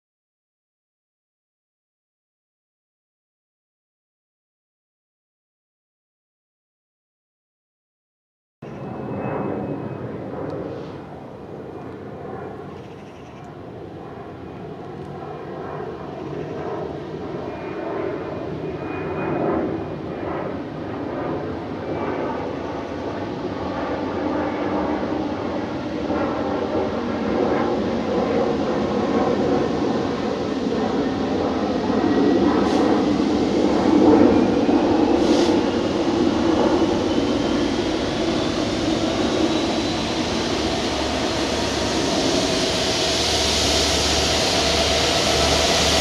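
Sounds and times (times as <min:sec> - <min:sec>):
distant diesel locomotives droning: 0:08.6 - 0:18.8, 0:19.7 - 0:46.0.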